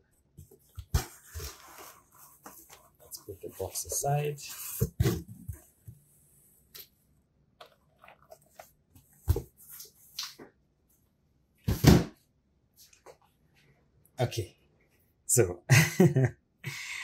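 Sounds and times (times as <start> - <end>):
dull thump of box: 11.7 - 12.1.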